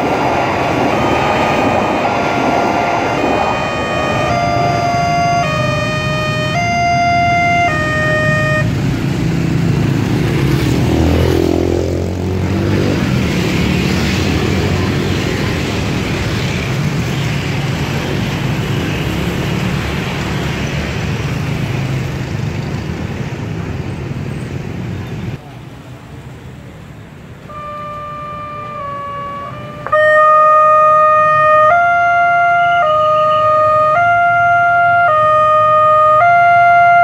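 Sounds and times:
level crossing warning tone: 0.0s - 8.9s, 27.5s - 37.0s
vehicle passing close: 0.0s - 24.8s
motorcycle and car engines: 0.0s - 37.0s.

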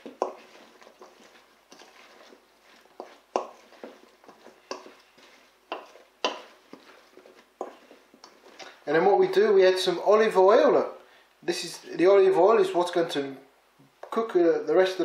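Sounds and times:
spoon knocking vegetables in metal bowl: 3.0s - 5.0s, 5.6s - 8.6s.

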